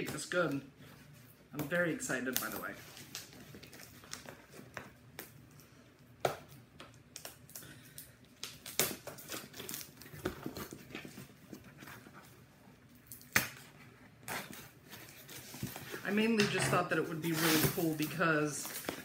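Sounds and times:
packing material crinkling: 0:01.2 - 0:16.3.

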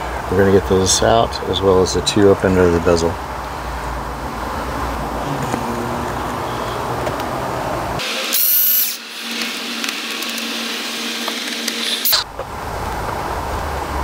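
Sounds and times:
cordless drill whine: 0:08.0 - 0:12.3.

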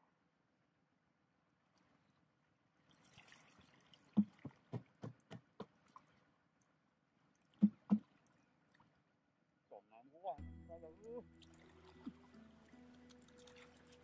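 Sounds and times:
water splashing and pouring: 0:02.8 - 0:06.3, 0:11.0 - 0:14.0
sharp knocks: 0:07.6 - 0:08.0.

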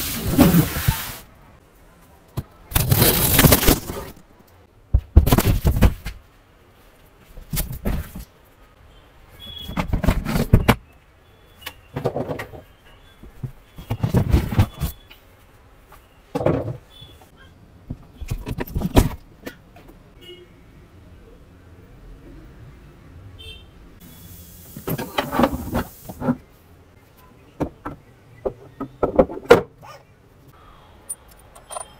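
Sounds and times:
cardboard rustling and knocking: 0:09.7 - 0:10.8, 0:13.4 - 0:15.0.

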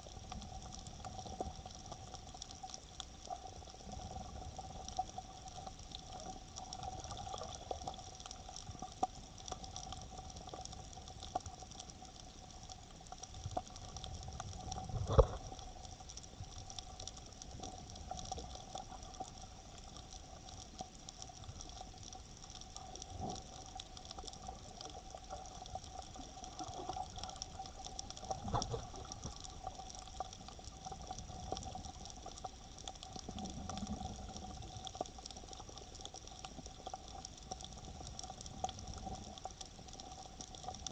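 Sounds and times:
faint constant hum: 0:00.0 - 0:40.9
underwater water sloshing: 0:00.0 - 0:40.9.

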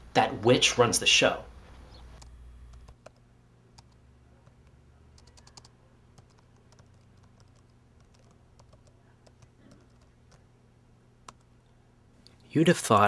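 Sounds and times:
typing on laptop keyboard: 0:02.2 - 0:03.2, 0:03.8 - 0:10.4, 0:11.2 - 0:11.5.

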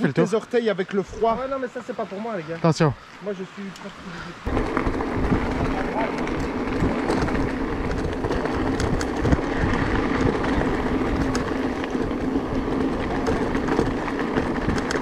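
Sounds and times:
bike tyres crunching on gravel: 0:00.8 - 0:15.0
stones ticking and rattling: 0:03.7 - 0:15.0.

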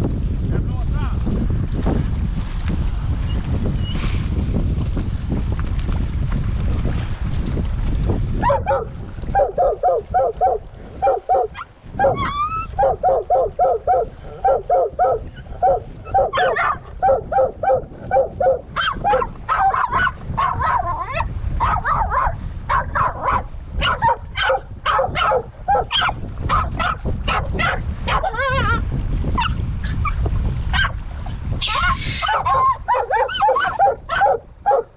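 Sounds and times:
wind rumble on microphone: 0:00.0 - 0:34.9
dogs barking rapidly: 0:08.4 - 0:28.7, 0:29.4 - 0:31.0, 0:31.6 - 0:34.9
dog whining: 0:11.1 - 0:13.0, 0:15.0 - 0:16.8, 0:31.7 - 0:33.9.

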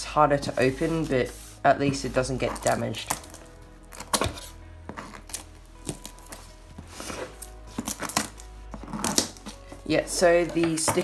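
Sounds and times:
soft background music: 0:00.0 - 0:11.0
scissors cutting packing tape: 0:02.6 - 0:06.4, 0:07.2 - 0:09.6.

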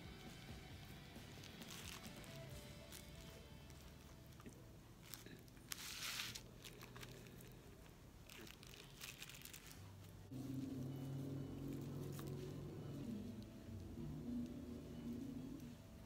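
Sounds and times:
handling rustle: 0:01.2 - 0:10.4.

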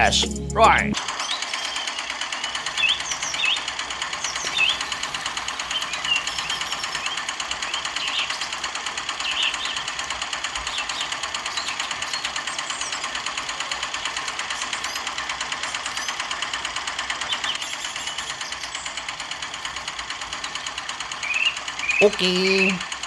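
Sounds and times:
small diesel engine clattering: 0:01.0 - 0:23.0.

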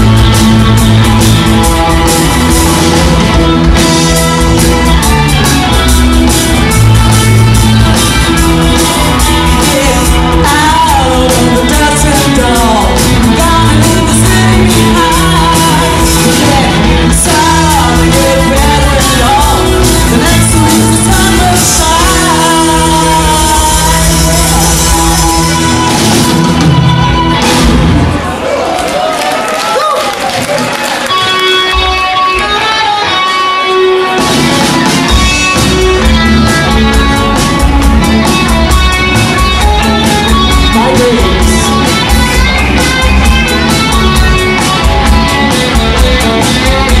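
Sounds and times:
live rock band playing: 0:00.0 - 0:28.9, 0:29.7 - 0:47.0
person singing: 0:07.5 - 0:27.6, 0:35.1 - 0:47.0.

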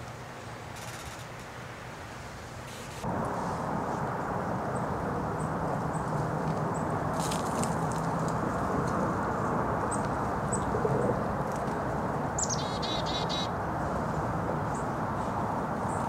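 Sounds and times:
songbird chirping: 0:12.4 - 0:13.5.

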